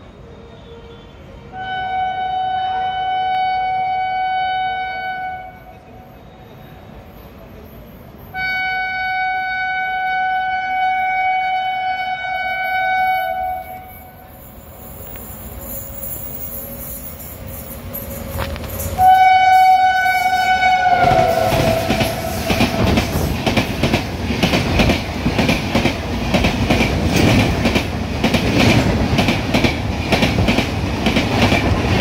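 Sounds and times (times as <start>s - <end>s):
locomotive air horn blasts: 0.4s - 5.7s, 8.4s - 14.1s, 19.0s - 23.3s
train rumble: 5.4s - 32.0s.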